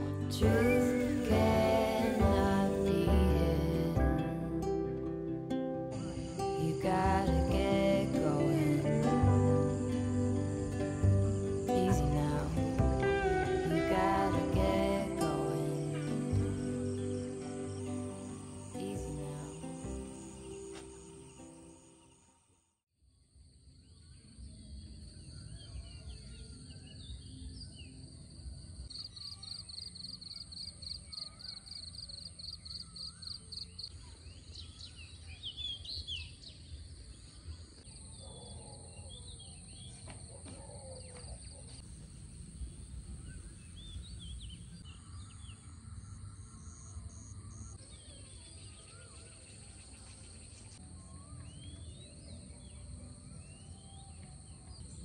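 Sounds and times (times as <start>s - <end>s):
high insect drone: 5.9s - 22.4s.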